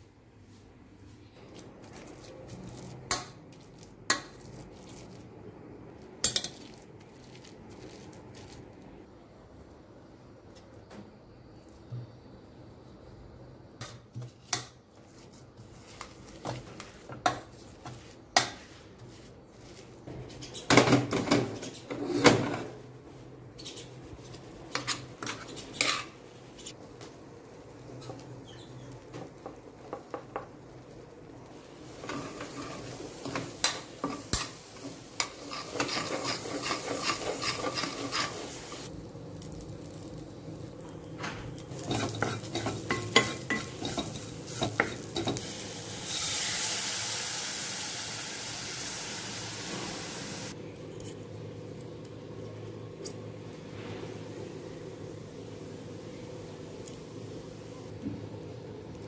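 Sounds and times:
spoon scraping metal pot: 35.2 - 38.5.

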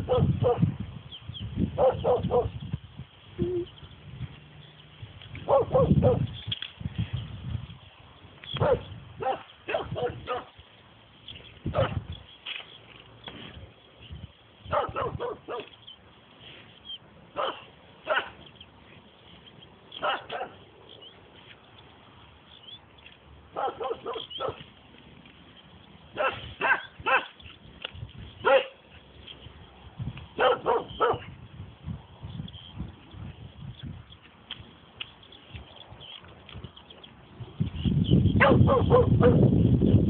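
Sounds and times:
dog barking: 0.0 - 0.6, 1.8 - 2.5, 5.4 - 6.2, 8.6 - 10.5, 11.7 - 12.0, 14.7 - 15.7, 17.3 - 18.4, 20.0 - 20.6, 23.5 - 24.6, 26.1 - 27.4, 28.4 - 28.8, 30.4 - 31.3, 38.4 - 39.4.

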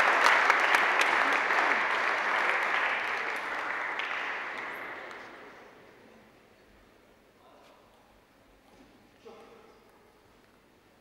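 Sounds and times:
crowd applauding: 0.0 - 5.5.

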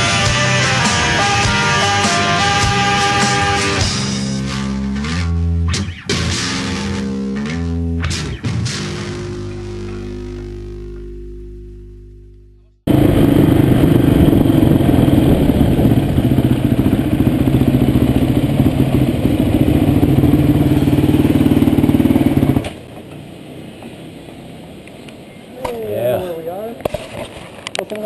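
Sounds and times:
dirt bike engine running: 8.8 - 22.9.

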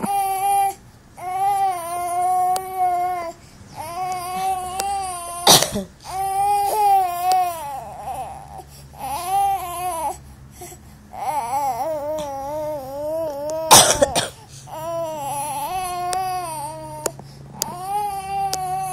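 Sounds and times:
infant coughing: 0.0 - 0.4, 5.4 - 7.0, 13.6 - 14.8
infant crying: 0.0 - 10.2, 11.1 - 18.9.

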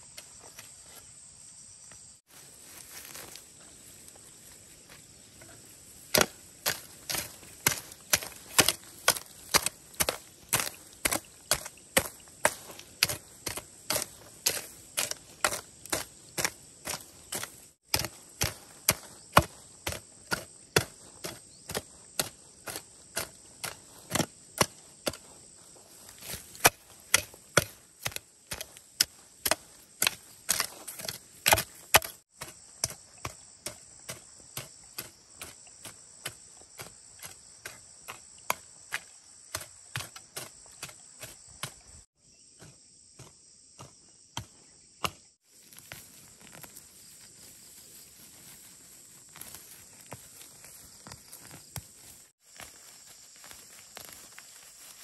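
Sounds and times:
insects buzzing: 0.0 - 55.0
hoe chopping into soil: 5.4 - 42.0.

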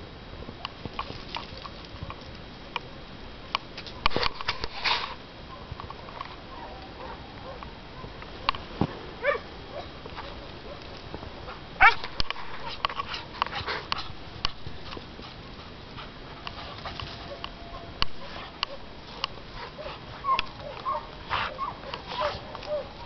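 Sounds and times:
sharp clicks and crackles: 10.0 - 15.2
dog whining: 19.8 - 23.0.

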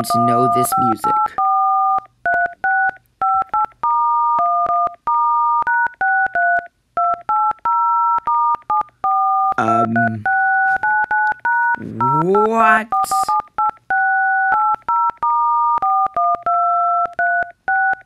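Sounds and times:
phone keypad tones: 0.0 - 18.0
brief voice-like sound: 11.8 - 12.6.

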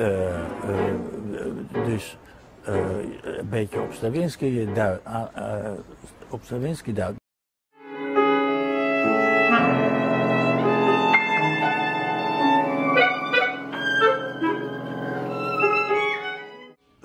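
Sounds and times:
clarinet viola and piano trio: 0.4 - 2.0, 7.8 - 16.8.

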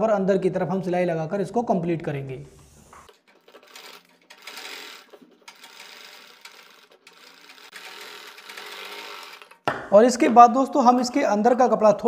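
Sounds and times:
sewing machine stitching: 3.1 - 9.6.

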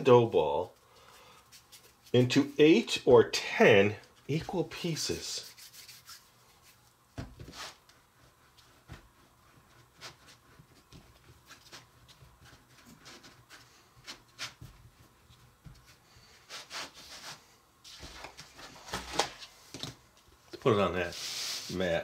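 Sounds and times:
hands rubbing dough: 0.4 - 2.6, 3.8 - 18.4.

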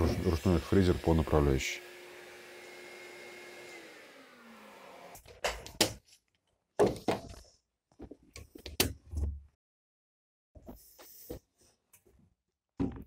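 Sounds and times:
power tool motor winding down: 0.0 - 5.2.

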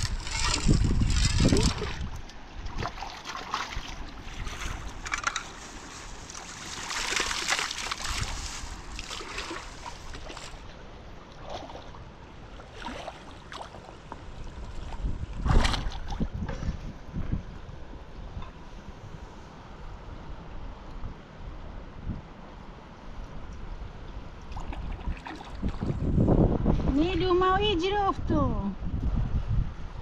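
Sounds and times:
river water splashing: 0.0 - 16.3, 24.4 - 26.0.

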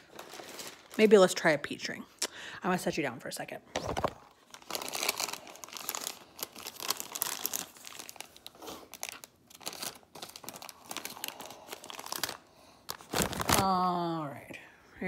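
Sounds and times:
plastic bag crinkling: 0.0 - 1.6, 3.8 - 13.9.

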